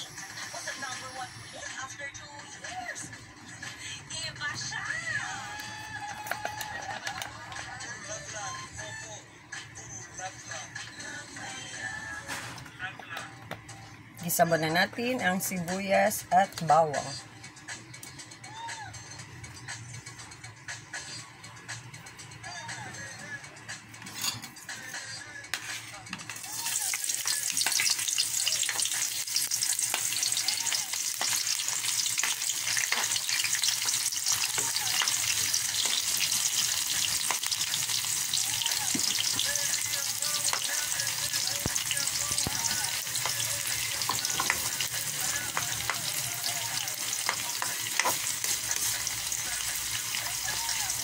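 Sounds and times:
onion and garlic sizzling in oil: 0.0 - 1.6, 25.6 - 51.0
spatula scraping wok: 24.0 - 30.4, 42.0 - 50.6.

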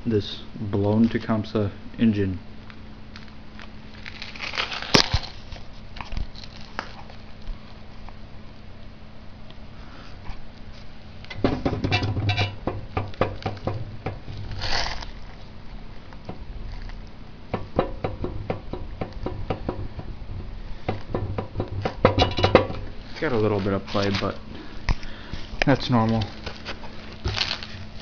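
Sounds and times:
metal clicks and knocks: 11.3 - 14.5, 17.5 - 23.0.

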